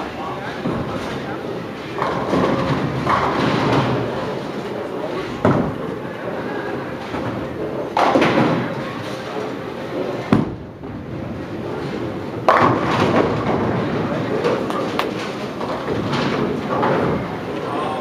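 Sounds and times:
murmur of voices: 0.0s - 10.4s, 16.5s - 18.0s.

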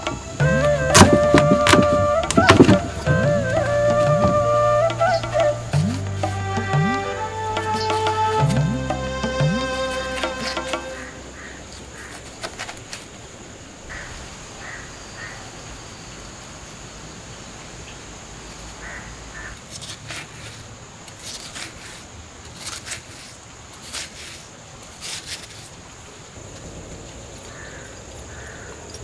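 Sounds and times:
high-pitched drone: 0.0s - 11.4s
birds calling: 0.0s - 13.0s
knife cutting watermelon: 0.6s - 6.5s, 19.6s - 25.7s.

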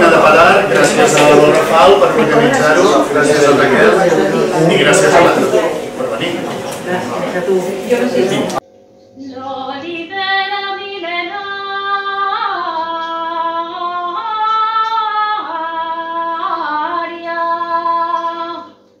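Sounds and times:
woman singing slow melody: 9.2s - 18.8s.

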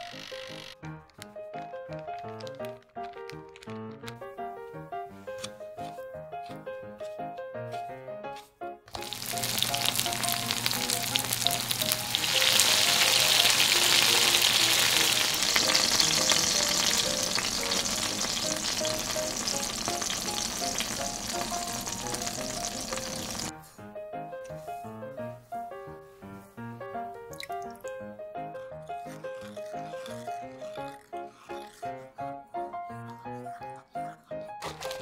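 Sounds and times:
meat sizzling in hot oil: 8.9s - 23.5s.

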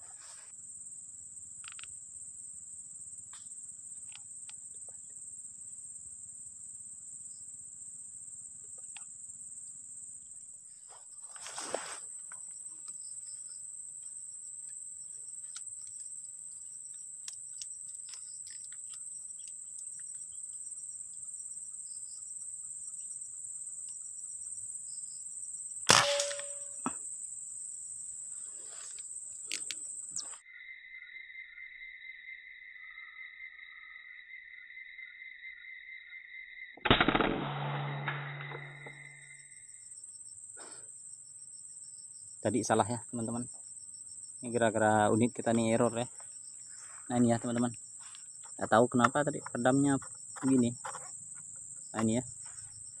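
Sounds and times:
high-pitched insect drone: 16.9s - 36.7s
air rifle shot with ringing: 25.9s - 27.0s, 36.8s - 39.6s.

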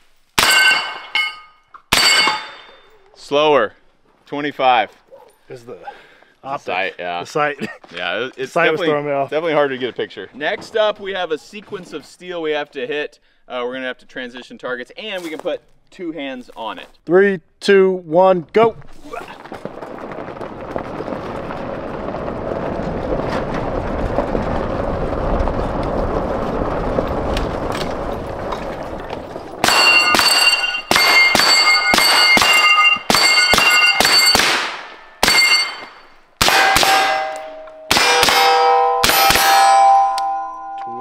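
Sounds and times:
bullets ringing on steel targets: 0.4s - 3.0s, 29.6s - 41.0s
steady rushing noise: 19.5s - 31.4s
rifle firing: 29.6s - 35.8s, 36.4s - 39.7s.

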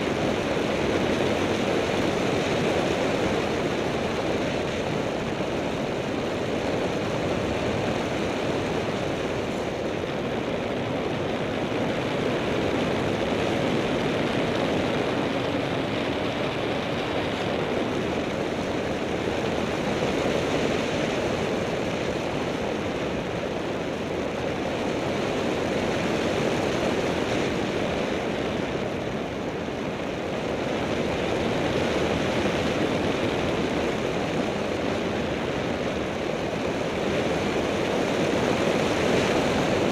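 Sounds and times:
light aircraft engine drone: 0.0s - 39.9s.

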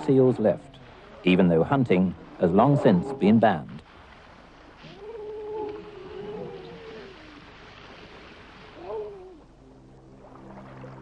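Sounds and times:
seals calling: 2.2s - 3.6s, 4.8s - 7.7s, 8.5s - 9.6s.

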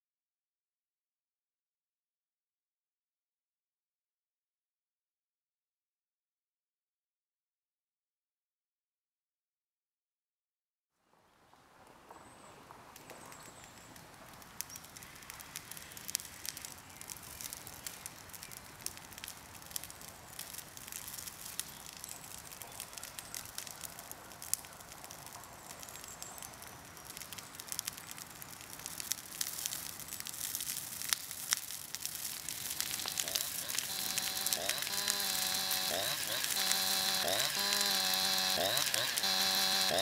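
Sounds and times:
brush pile burning and crackling: 12.7s - 40.0s.

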